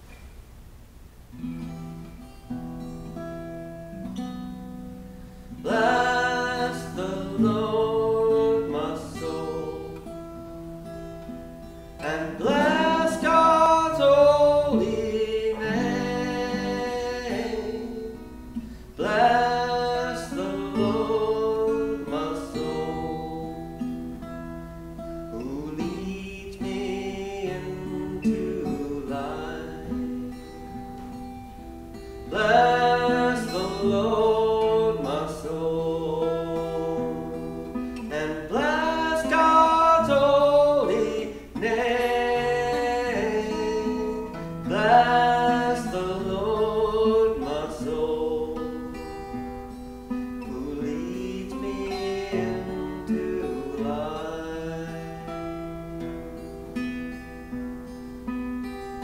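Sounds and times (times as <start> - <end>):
strummed acoustic guitar: 0.0 - 59.0
man singing: 5.5 - 10.2, 12.0 - 24.3, 25.3 - 30.5, 32.2 - 49.4, 50.3 - 56.0.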